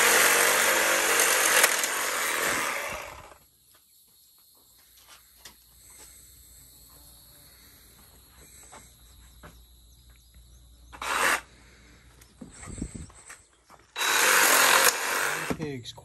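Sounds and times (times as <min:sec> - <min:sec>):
reciprocating saw cutting: 0:00.0 - 0:03.4, 0:11.0 - 0:11.5, 0:14.0 - 0:15.6
crickets chirring: 0:02.0 - 0:16.0.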